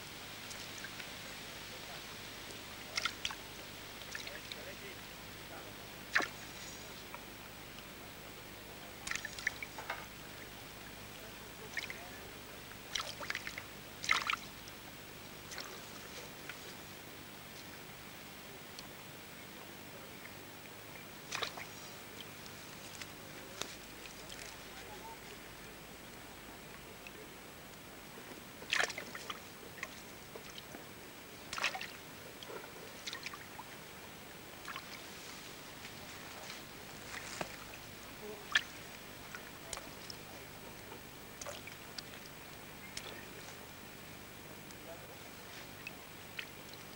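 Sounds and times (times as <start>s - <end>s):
water splashing and dripping: 9.0s - 9.7s, 12.9s - 14.4s, 21.3s - 22.3s, 28.6s - 30.7s, 31.5s - 33.6s.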